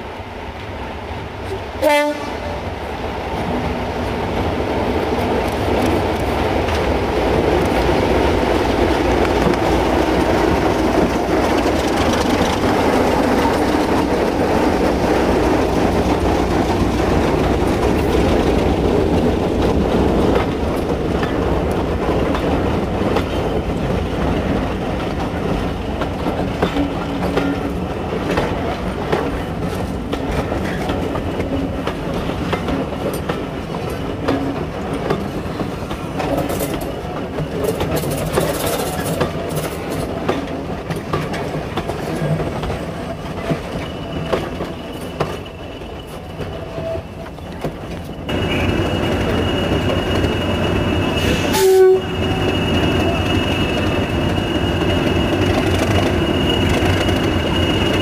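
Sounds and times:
diesel locomotives whining: 0.0 - 58.0
loud horn blast: 1.8 - 2.6, 51.3 - 52.3
train wheels clicking over rail joints: 3.4 - 58.0.

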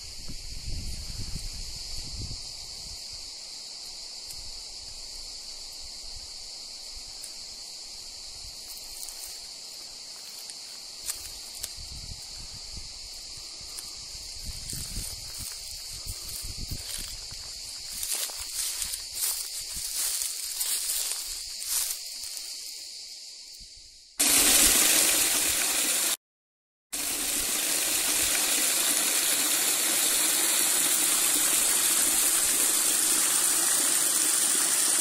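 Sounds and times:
wind buffeting microphone: 0.0 - 3.0, 11.7 - 17.4
cicada chorus drone: 0.0 - 25.9, 27.0 - 35.0.

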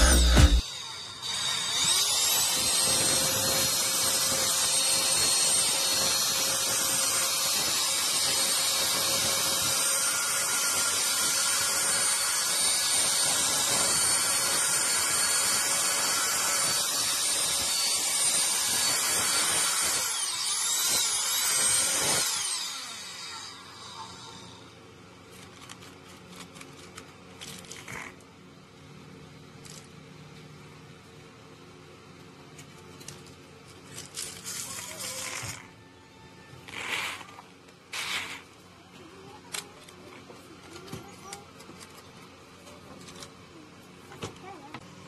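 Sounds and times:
vacuum motor whining: 0.0 - 6.4
screws rattling: 32.6 - 35.7.

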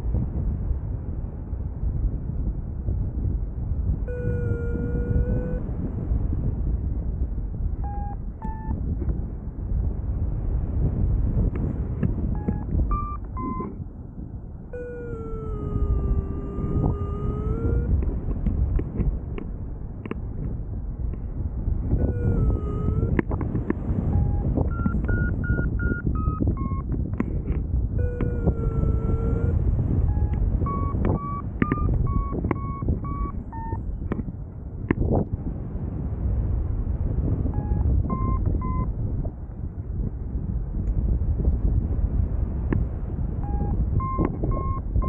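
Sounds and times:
wind noise on microphone: 0.0 - 45.0
variometer long low tone: 3.9 - 6.0, 7.7 - 9.2, 12.2 - 13.9, 14.5 - 19.0, 21.2 - 34.2, 37.1 - 39.0, 42.7 - 45.0
variometer short beeps: 4.1 - 5.6, 7.8 - 8.8, 12.3 - 13.8, 14.7 - 18.0, 22.0 - 23.4, 24.1 - 26.9, 28.0 - 33.8, 37.5 - 38.9, 43.4 - 45.0.

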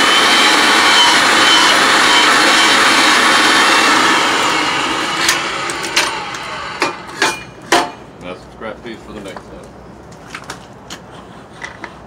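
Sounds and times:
pipe threading machine running: 0.0 - 7.2
sharp metal knocks: 6.8 - 8.1.

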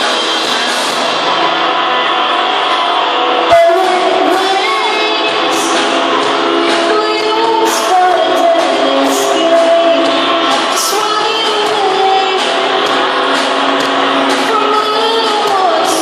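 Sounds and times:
live rock band playing: 0.0 - 16.0
woman singing: 3.4 - 13.0, 14.3 - 16.0.

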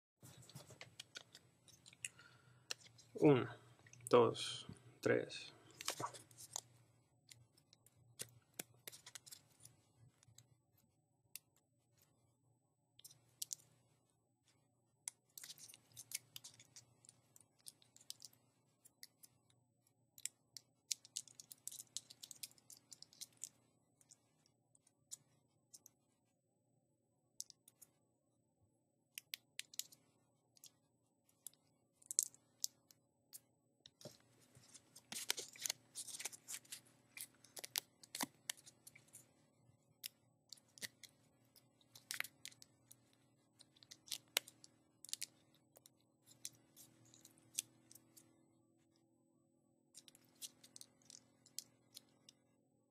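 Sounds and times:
paper crinkling as it is folded: 34.0 - 39.2.

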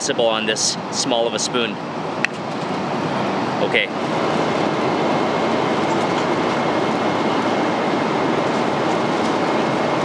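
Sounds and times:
jet engine cabin rush: 0.7 - 10.0.

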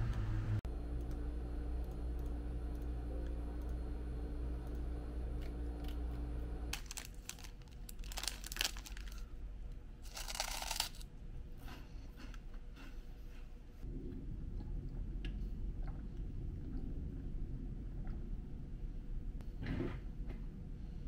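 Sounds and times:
steady low hum: 0.0 - 21.0
wrapping crinkling and tearing: 6.7 - 9.3, 10.0 - 11.0.

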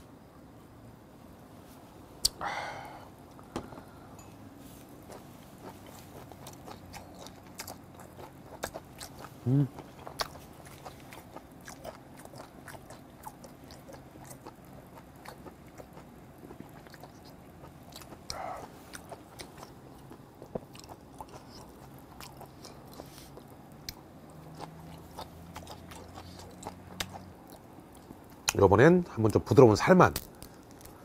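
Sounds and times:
chewing crab shell: 5.0 - 28.6.

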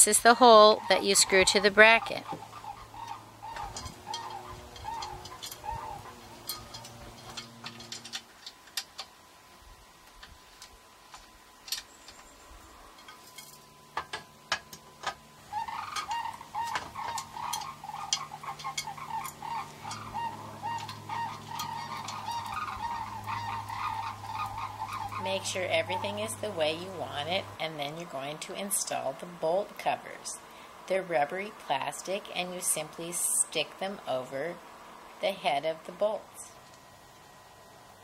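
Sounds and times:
cranes calling: 0.0 - 9.1, 11.6 - 37.4
metal parts clicking: 3.6 - 9.1.

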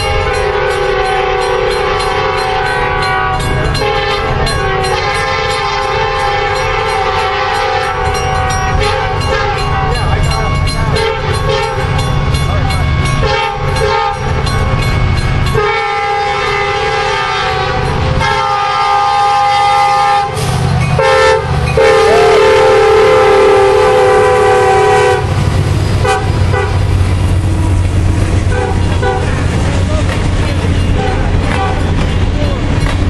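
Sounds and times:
locomotive air horn blasts: 0.0 - 9.8, 10.9 - 12.0, 13.1 - 14.4, 15.5 - 25.4, 26.0 - 26.9, 28.5 - 29.4
diesel locomotive rumble: 0.0 - 33.0
freight cars rolling past: 25.0 - 33.0.

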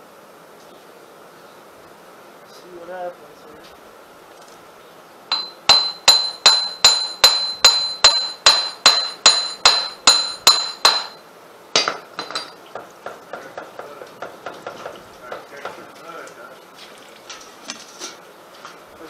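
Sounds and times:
hammer clanging on metal axle: 5.3 - 11.2, 11.8 - 15.8.

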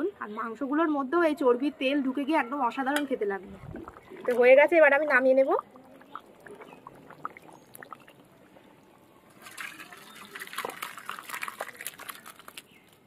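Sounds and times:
wet sloshing pour: 3.5 - 12.8
curry bubbling in pan: 3.8 - 9.1, 9.8 - 12.7.

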